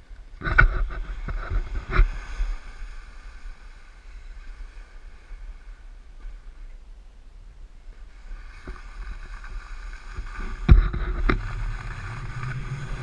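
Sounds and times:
snowboard scraping over snow: 0.4s - 5.8s, 8.0s - 13.0s
wind buffeting microphone: 8.0s - 13.0s.

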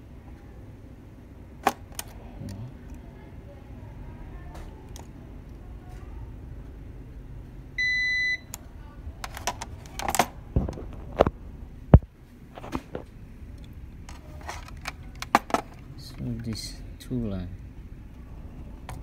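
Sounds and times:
multimeter continuity beep: 7.8s - 8.6s.

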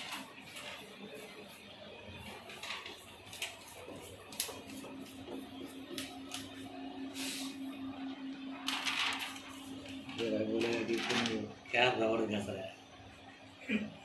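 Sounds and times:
paper rustling and scraping: 0.0s - 7.5s, 8.6s - 11.5s
steady low hum: 0.5s - 14.0s.

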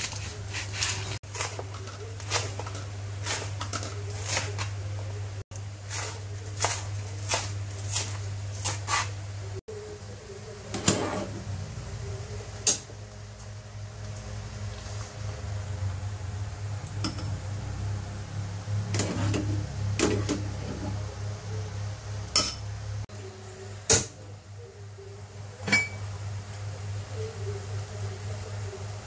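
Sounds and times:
knife chopping on cutting board: 5.9s - 9.1s.

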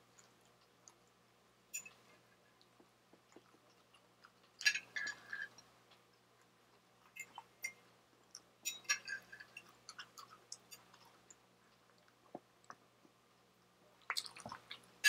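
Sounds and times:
metal fork clinking on ceramic plate: 8.6s - 9.7s.

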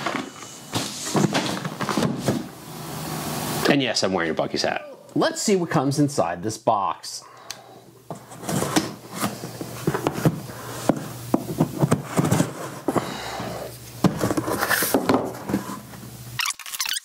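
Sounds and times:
packing tape and cardboard rustling: 0.0s - 2.6s, 8.1s - 17.0s.

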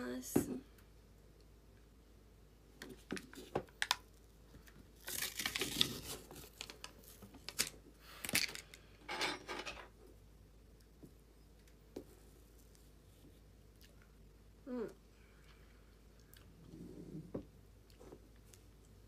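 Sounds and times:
packaging rustling: 5.0s - 8.6s.

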